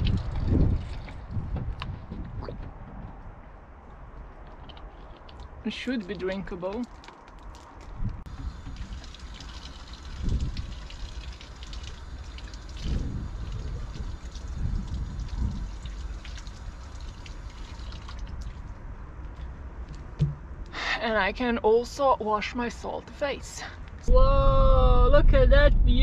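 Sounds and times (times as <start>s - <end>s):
dull low thumps: 0.0s - 3.4s, 20.1s - 20.7s, 24.0s - 26.0s
water running from tap: 8.3s - 18.3s.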